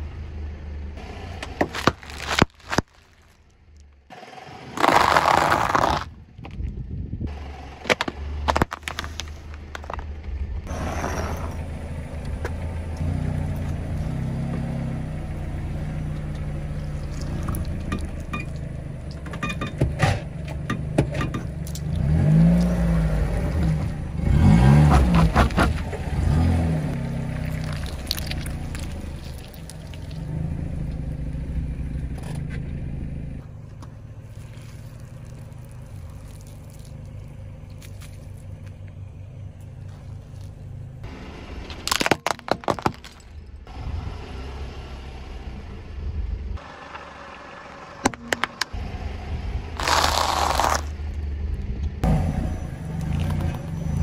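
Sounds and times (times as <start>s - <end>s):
tyre crushing objects on asphalt: 1.4s - 6.8s, 7.8s - 10.2s, 41.7s - 43.5s, 49.8s - 51.0s
car engine revving: 21.7s - 29.2s.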